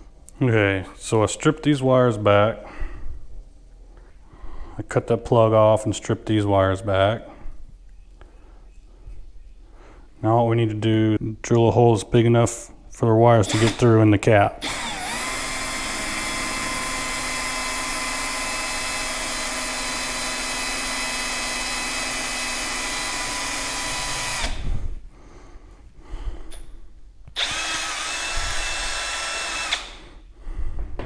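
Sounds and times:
cordless drill whining: 13.5 - 13.8, 14.6 - 24.8, 27.4 - 30.1.

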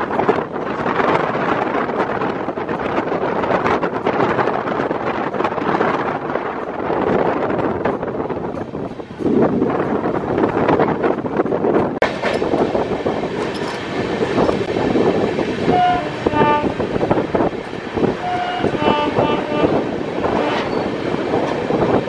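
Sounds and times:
train wheels rumbling: 0.0 - 22.0
locomotive two-tone horn: 15.7 - 16.9, 18.2 - 20.9.

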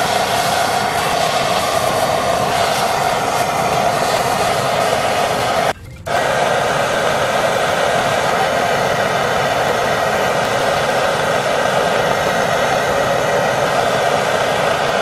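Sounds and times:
propane torch hissing: 0.0 - 15.0.

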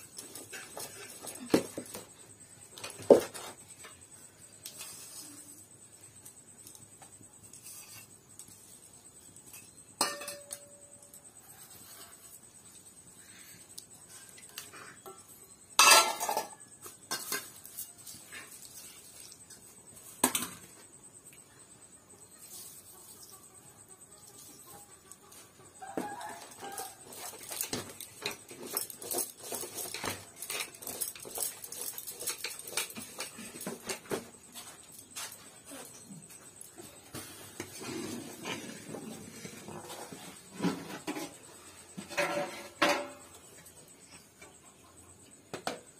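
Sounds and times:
steel kitchenware clinking: 15.8 - 17.6.

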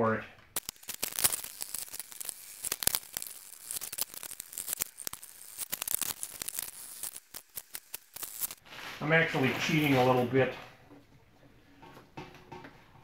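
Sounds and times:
plastic bottles crackling and clicking: 0.4 - 10.2.

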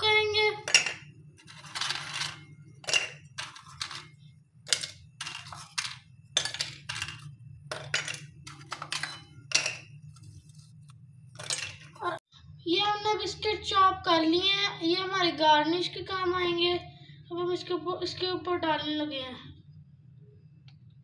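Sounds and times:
glass and plastic clinking: 0.6 - 10.0, 11.3 - 12.2.

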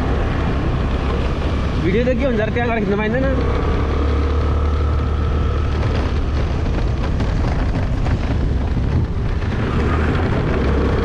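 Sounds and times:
road noise: 0.0 - 11.0
wind buffeting microphone: 0.0 - 11.0
scooter engine: 2.8 - 11.0.

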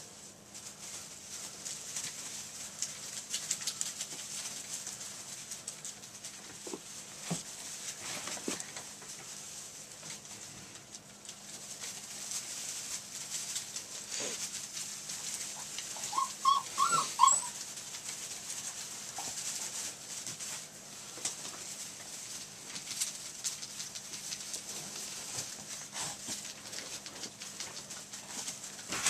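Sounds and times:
puppies rustling in wood shavings: 0.0 - 29.0
puppy whimpering yelps: 15.9 - 17.6.

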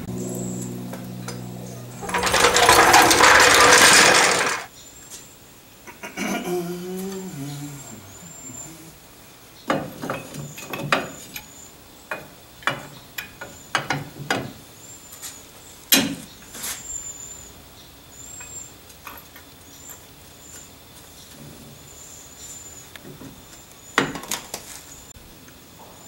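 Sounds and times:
hand tools clanking on metal: 1.3 - 4.7, 9.7 - 11.5.

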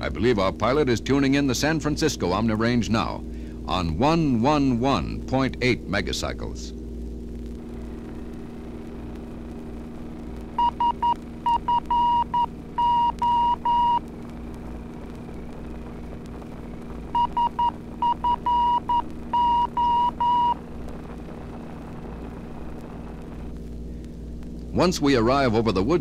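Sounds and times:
steady low drone: 0.0 - 26.0
morse code tone: 10.6 - 14.0, 17.1 - 20.6.

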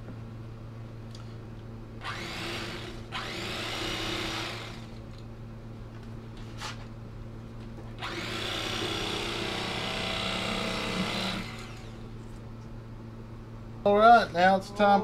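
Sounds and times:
electric carving knife running: 2.0 - 5.0, 8.0 - 12.1.

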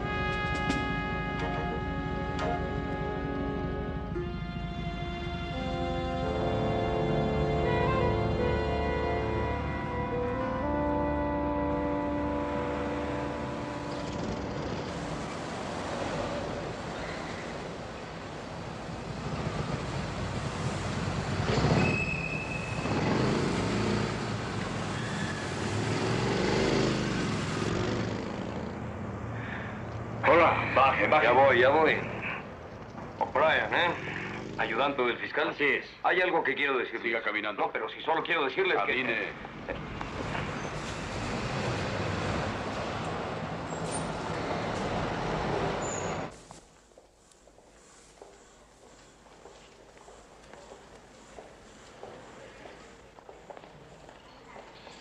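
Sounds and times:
van engine and tyres: 0.0 - 35.1, 39.1 - 47.0
traffic noise drone: 0.0 - 55.0
brief high squeal: 21.8 - 22.9, 25.0 - 25.5, 45.8 - 46.2.

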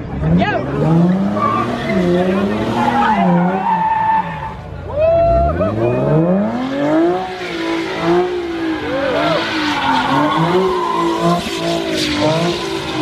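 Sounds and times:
car engine revving high: 0.0 - 3.9, 5.3 - 13.0
tyres squealing: 7.2 - 13.0.

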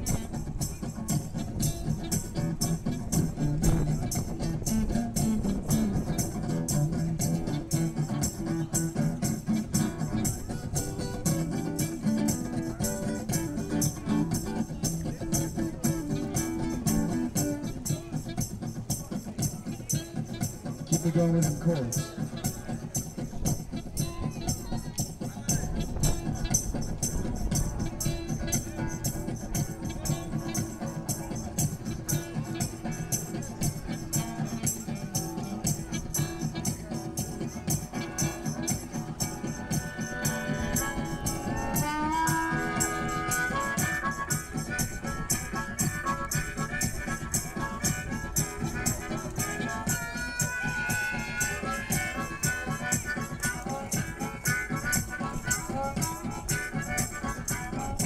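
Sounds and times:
live music with steady beat: 0.0 - 58.0
shaker rhythm: 0.0 - 58.0
saxophone melody: 38.0 - 58.0.

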